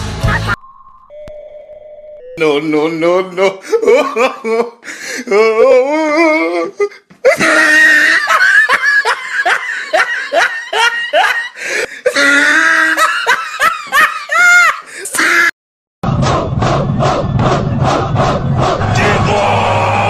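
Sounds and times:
people laughing hard: 3.4s - 4.8s, 7.3s - 14.9s.

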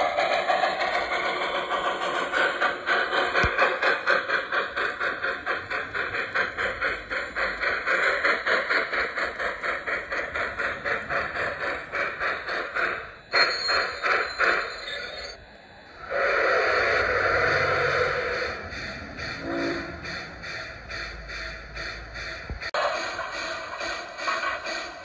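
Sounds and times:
steady hiss: 0.0s - 19.2s
model steam locomotive chuffing: 0.0s - 25.0s.

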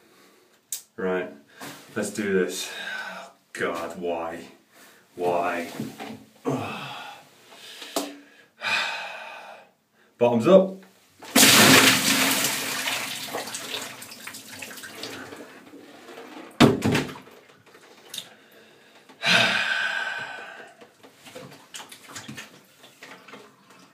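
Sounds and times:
water splashing: 11.3s - 15.8s, 21.3s - 23.8s.

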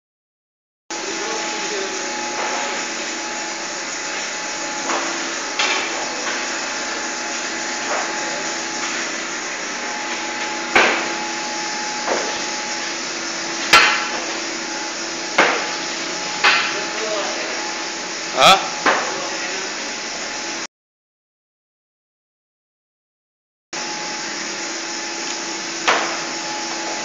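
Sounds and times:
machinery humming: 0.9s - 20.7s, 23.8s - 27.0s.

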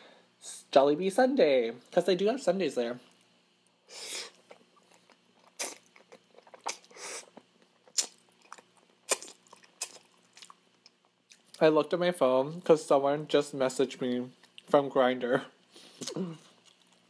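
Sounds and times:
wet chewing: 4.3s - 11.6s, 16.0s - 17.0s.

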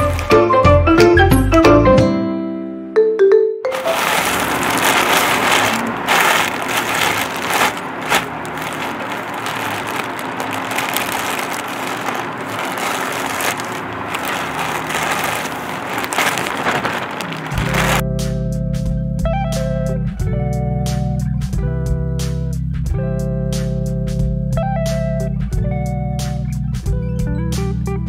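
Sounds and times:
plastic bag crinkling: 0.0s - 0.4s, 3.7s - 18.0s.

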